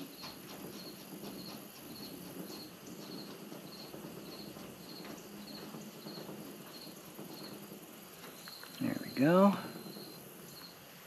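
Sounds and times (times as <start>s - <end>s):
cricket chirping: 0.0s - 10.9s.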